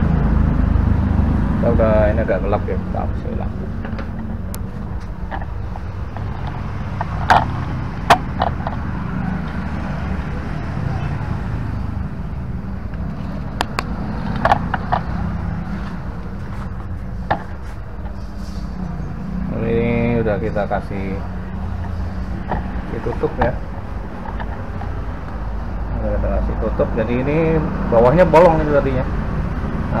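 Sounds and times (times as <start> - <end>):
steady low hum: 0.0 - 30.0
clicks of handling plastic parts: 24.2 - 24.9.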